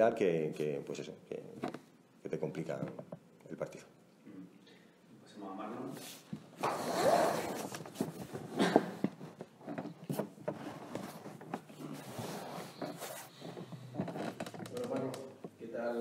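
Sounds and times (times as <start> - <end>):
microphone rubbing and rustling: 5.9 - 16.0
microphone knocks and clicks: 12.8 - 15.6.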